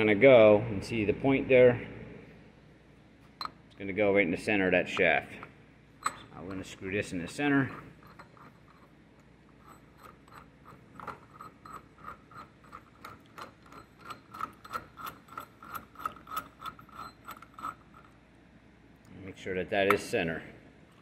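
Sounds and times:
screw threads clicking: 9.5 - 18.2.

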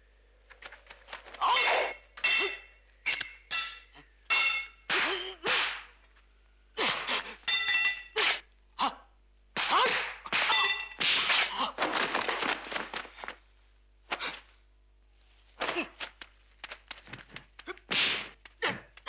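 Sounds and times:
metallic clangs ringing: 1.5 - 4.9, 7.5 - 8.2
punch impacts: 17.8 - 18.9.

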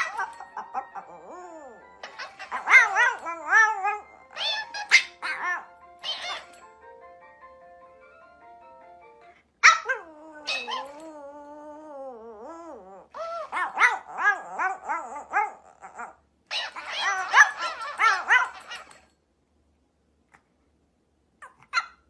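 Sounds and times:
dog yelping barks: 0.0 - 1.3, 2.0 - 6.6, 9.6 - 11.2, 13.2 - 19.0
dog howling: 0.0 - 6.5, 9.7 - 19.0.

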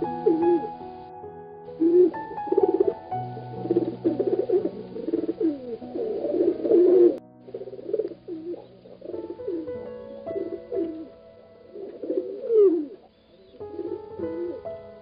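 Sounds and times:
soft instrumental music: 0.0 - 15.0
pigeons cooing: 3.5 - 9.6, 11.7 - 14.6.

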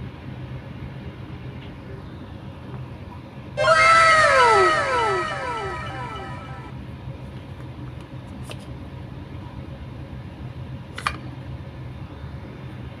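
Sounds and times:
falling whistle-like tone: 3.6 - 6.7.

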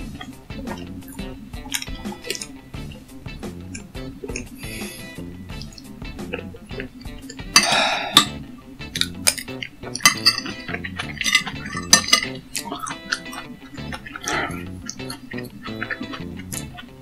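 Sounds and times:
background music: 0.0 - 17.0
cutlery clinking against dishes: 10.0 - 10.6, 11.3 - 13.4.

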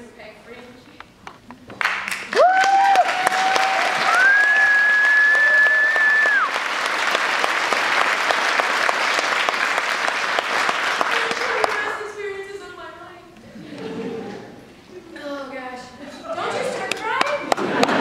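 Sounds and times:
audience applause: 1.8 - 12.1
cheering whoops: 2.3 - 6.6.

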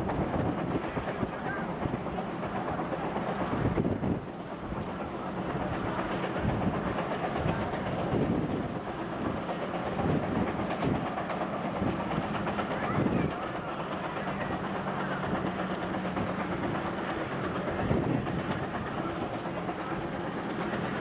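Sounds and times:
tractor engine under load: 4.6 - 21.0.

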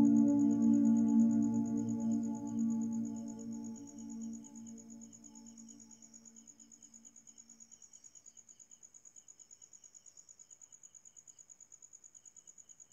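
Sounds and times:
soft background music: 0.0 - 5.5
faint cricket chirping: 0.0 - 12.9.

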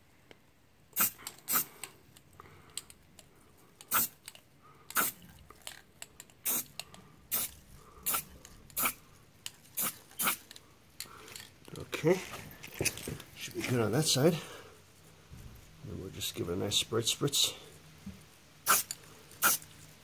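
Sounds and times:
aerosol spray can hissing: 1.0 - 1.9, 3.9 - 4.2, 4.9 - 5.2, 6.4 - 6.7, 7.3 - 9.0, 9.8 - 10.5, 18.6 - 19.6.

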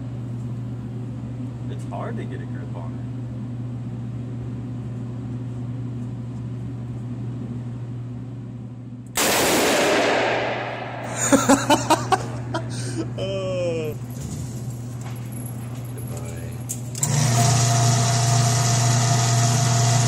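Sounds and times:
steady low hum: 0.0 - 18.1
revolver gunshot with echo: 9.2 - 11.1.

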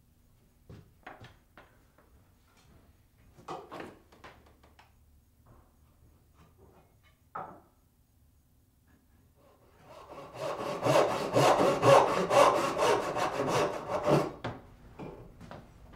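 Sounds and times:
wood knocking on workbench: 7.3 - 7.7.

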